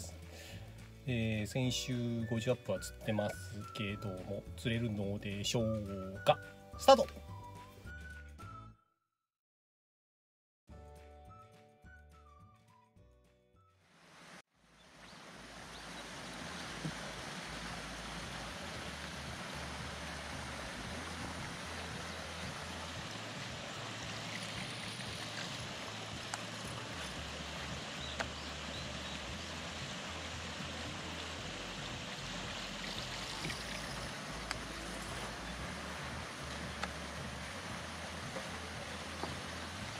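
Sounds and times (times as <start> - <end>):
water rushing along boat hull: 15.1 - 39.9.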